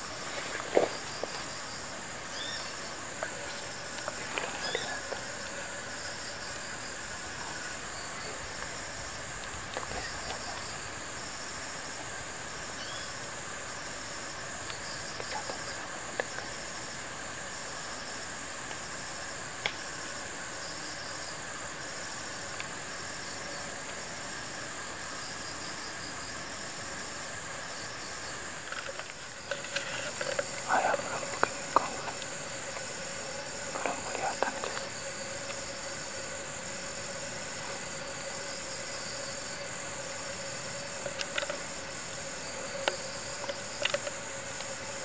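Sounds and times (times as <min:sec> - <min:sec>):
leaves rustling: 0:00.0 - 0:11.2
insects buzzing: 0:00.0 - 0:45.0
pulsed cricket chirp: 0:00.0 - 0:45.0.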